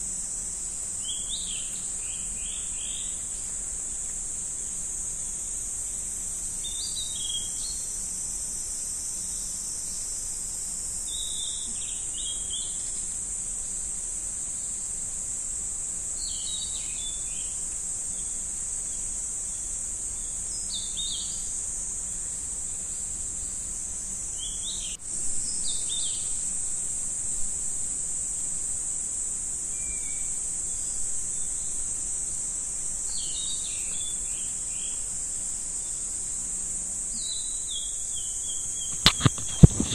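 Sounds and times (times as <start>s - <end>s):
insects droning: 0.0s - 39.9s
brief clicks: 38.9s - 39.9s.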